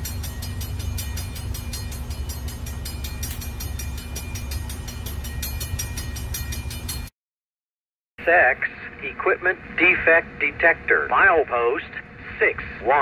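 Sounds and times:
diesel locomotive engines rumbling: 0.0 - 7.1, 8.2 - 13.0
rapid rhythmic clicking: 0.0 - 7.1.

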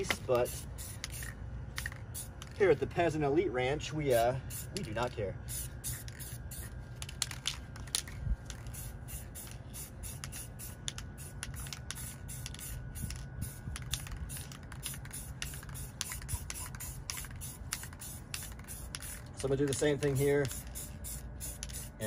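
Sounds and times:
aerosol spray can hissing: 0.4 - 2.5, 5.5 - 6.7, 8.5 - 19.3, 20.1 - 22.0.

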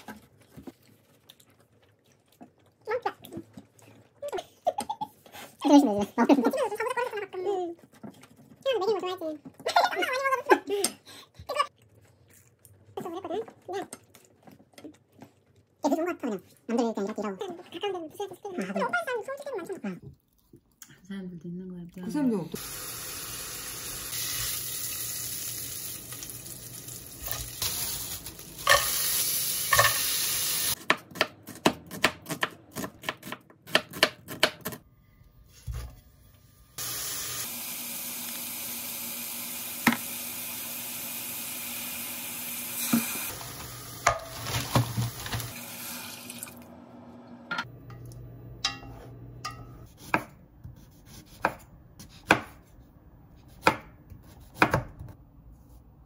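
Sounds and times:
meat sizzling in a pot: 22.6 - 30.8, 36.7 - 46.5
vegetables sizzling in a pot: 22.6 - 30.8, 36.5 - 46.6.

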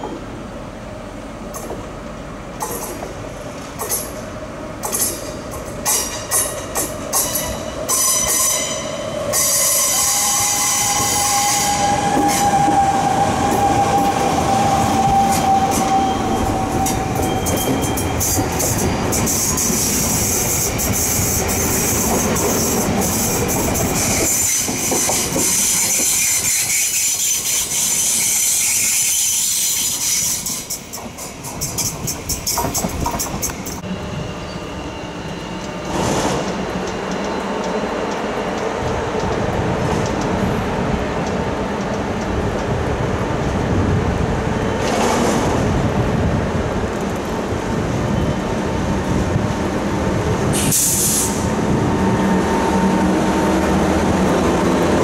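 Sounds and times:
train wheels rolling: 2.5 - 55.0
clacks over rail joints: 2.6 - 4.2, 4.8 - 7.4, 22.0 - 27.2, 30.7 - 33.8
high wheel squeal: 5.9 - 30.9, 31.5 - 38.0.

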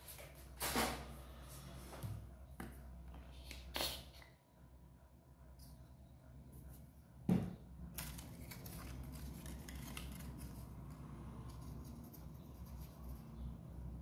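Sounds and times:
stiff paper rustling and crackling: 8.0 - 10.8.

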